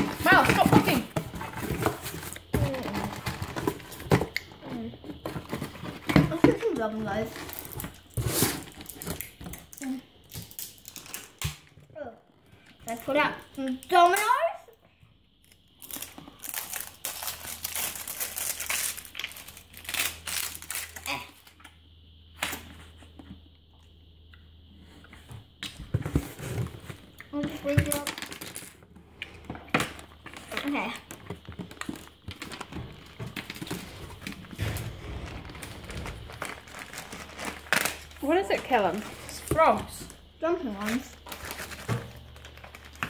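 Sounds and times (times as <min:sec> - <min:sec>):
cellophane crinkling: 0:15.8 - 0:21.3, 0:27.8 - 0:28.8, 0:30.0 - 0:43.0.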